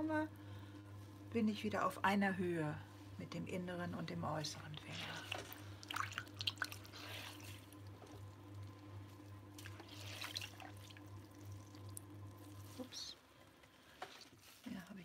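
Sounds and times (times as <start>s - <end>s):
potter's wheel humming: 0.0s - 15.0s
wet squelches and drips: 4.8s - 12.7s.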